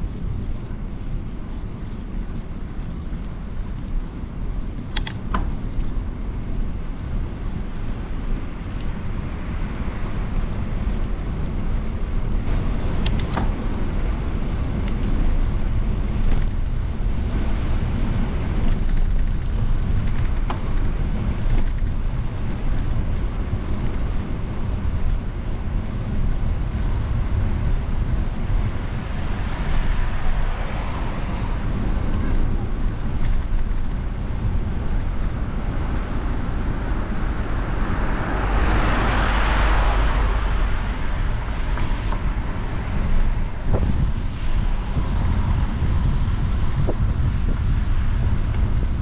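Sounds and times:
wind buffeting microphone: 0:00.0 - 0:49.0.

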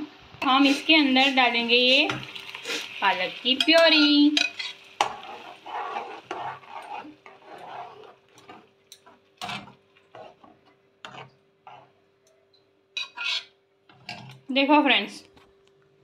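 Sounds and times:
spoon scraping metal vessel: 0:00.4 - 0:02.9, 0:03.6 - 0:12.0, 0:13.0 - 0:14.4
stirring thick gravy: 0:04.4 - 0:12.0.

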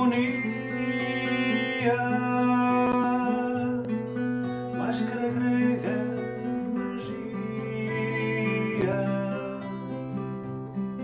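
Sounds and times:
person singing: 0:00.0 - 0:04.0, 0:04.8 - 0:10.1
guitar: 0:00.0 - 0:11.0.

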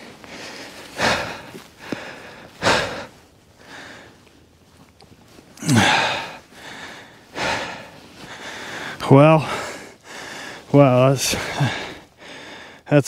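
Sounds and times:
man breathing hard: 0:00.0 - 0:12.9
man groaning: 0:05.6 - 0:06.4.

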